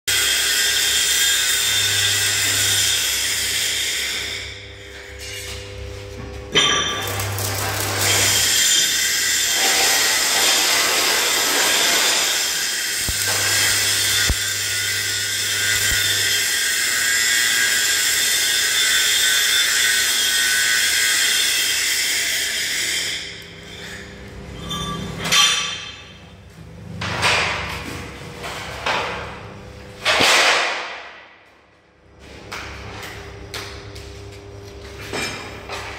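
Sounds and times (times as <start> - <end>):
arc welding crackling sizzle: 0.1 - 24.5.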